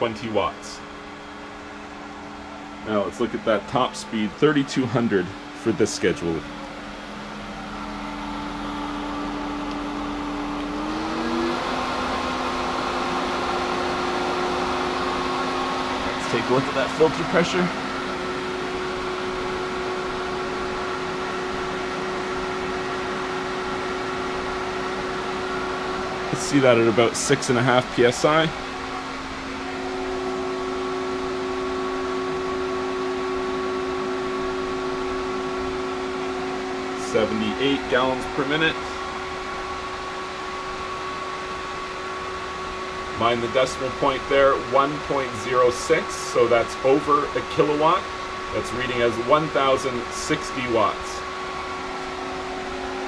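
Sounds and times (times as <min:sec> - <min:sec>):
pool pump motor ramping up: 0:00.0 - 0:53.0.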